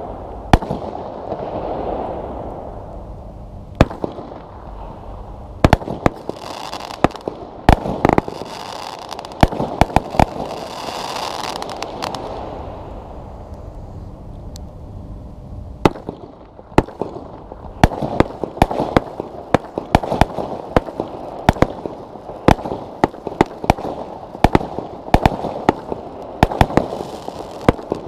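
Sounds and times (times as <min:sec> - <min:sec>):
fireworks bangs: 0:00.0 - 0:02.9, 0:03.8 - 0:13.3, 0:15.8 - 0:28.0
fireworks hiss: 0:04.2 - 0:14.2, 0:17.8 - 0:28.0.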